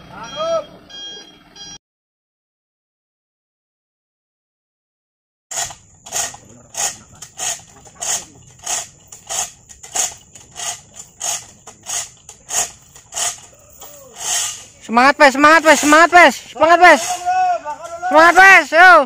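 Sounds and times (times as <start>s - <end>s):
thin steady high tone: 0.2s - 1.4s
come-along ratcheting clack: 5.5s - 18.8s.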